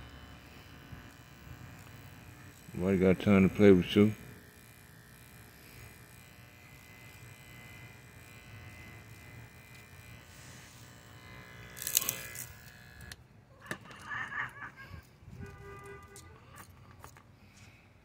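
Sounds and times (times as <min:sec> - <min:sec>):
electric hair clippers buzzing: 0:00.0 - 0:13.3.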